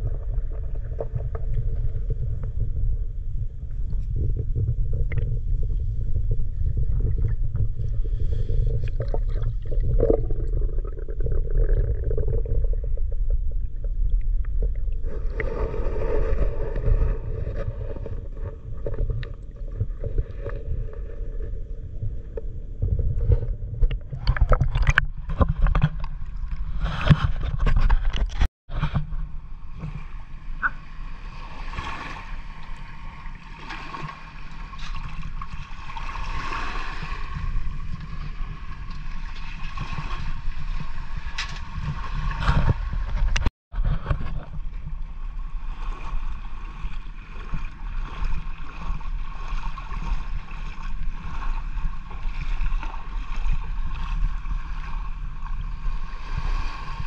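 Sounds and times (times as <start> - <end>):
water gurgling: 0.0 - 28.4
muffled underwater rumble: 0.0 - 57.0
underwater knocks: 22.0 - 30.0.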